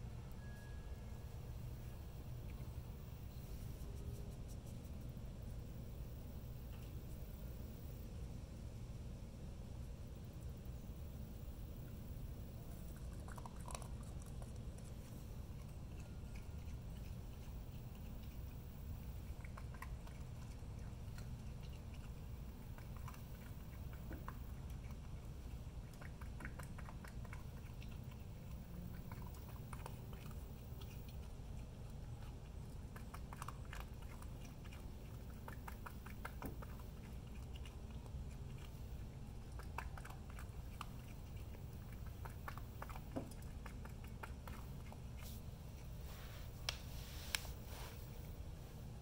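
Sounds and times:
low hum: 0.0s - 46.9s
animal crunching dry kibble: 11.9s - 46.8s.

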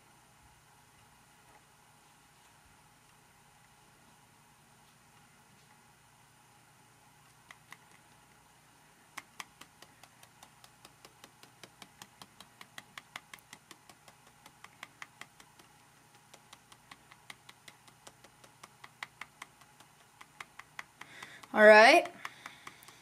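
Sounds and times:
marker tip ticking on card: 7.4s - 8.0s, 9.1s - 23.0s.

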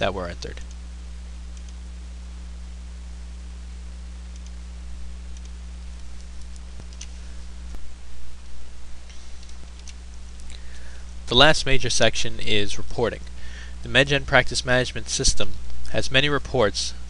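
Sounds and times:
room hum and hiss: 0.0s - 17.0s
computer mouse clicks: 1.5s - 1.8s, 4.3s - 4.6s, 5.3s - 7.1s, 9.1s - 10.6s.

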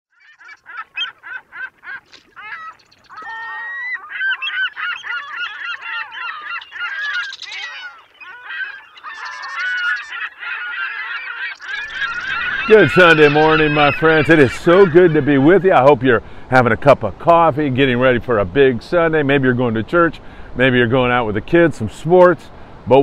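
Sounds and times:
flock of birds honking: 0.2s - 15.9s.

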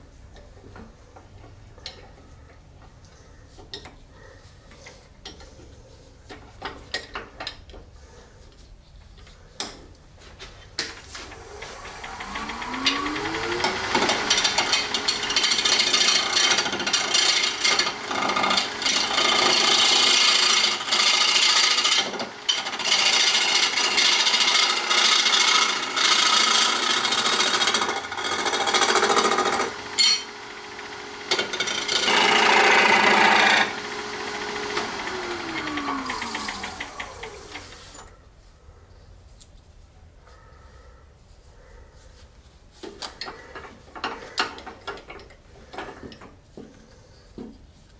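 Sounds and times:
turning tool scraping hiss: 10.9s - 29.7s, 31.2s - 38.1s
lathe humming: 10.9s - 38.1s
lathe winding down whine: 10.9s - 38.1s.

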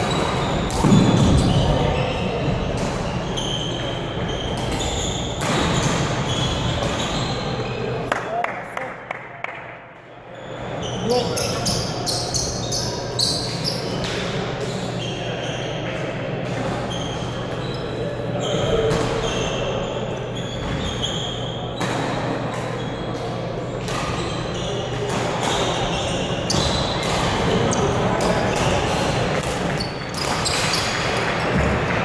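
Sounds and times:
sneakers squeaking on floor: 0.0s - 8.1s, 10.3s - 32.0s
murmur of voices: 9.7s - 32.0s.

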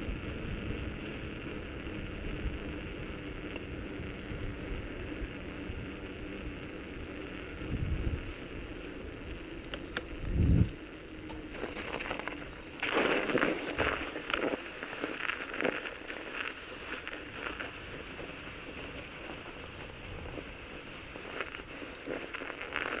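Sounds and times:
bike tyres rolling: 0.0s - 23.0s
wind on microphone: 7.6s - 8.4s, 10.1s - 10.8s.

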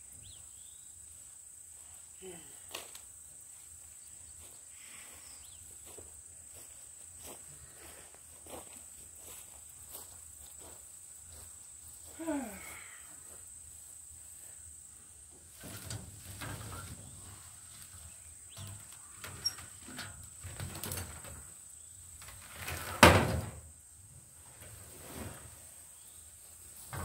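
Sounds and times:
insects droning: 0.0s - 27.0s
cart rustling through weeds: 15.5s - 21.6s.

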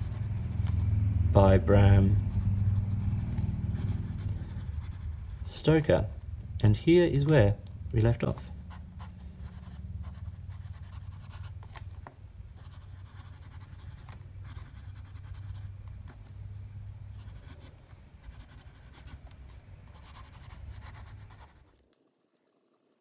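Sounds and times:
pen nib scratching on paper: 0.0s - 1.0s, 2.0s - 5.5s, 8.7s - 11.8s, 12.6s - 16.1s, 17.1s - 23.0s
low steady hum: 0.0s - 23.0s.

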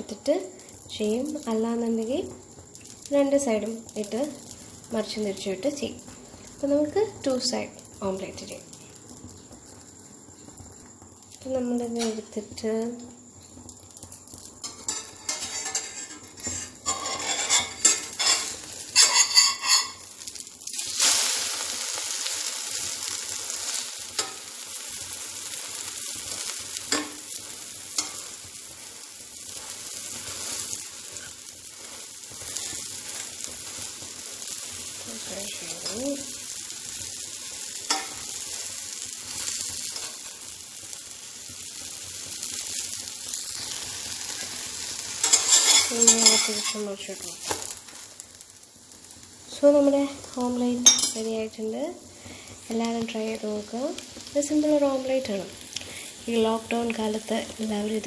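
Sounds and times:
egg sizzling in hot oil: 0.0s - 58.0s
spatula scraping a frying pan: 14.6s - 20.1s, 45.0s - 46.9s.

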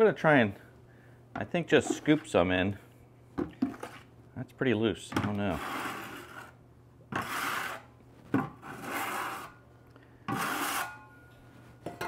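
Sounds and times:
metal trowel scraping grout: 5.5s - 7.9s, 8.6s - 9.6s, 10.3s - 11.1s.

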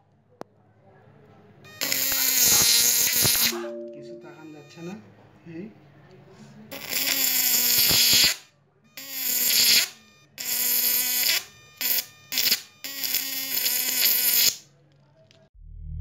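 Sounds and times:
electric arc buzzing: 1.8s - 3.6s, 6.8s - 8.4s, 9.0s - 14.6s.

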